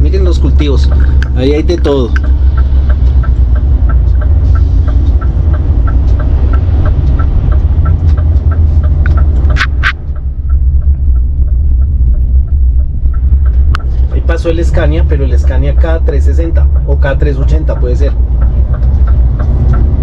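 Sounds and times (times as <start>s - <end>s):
light regular ticking: 0.0s - 20.0s
truck diesel engine rumble: 0.0s - 20.0s.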